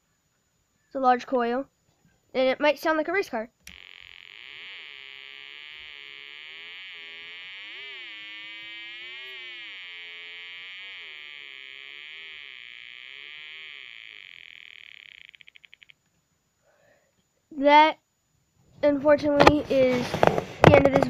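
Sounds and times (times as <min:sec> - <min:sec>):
sliding electronic buzzing tone: 0:03.6 - 0:16.2.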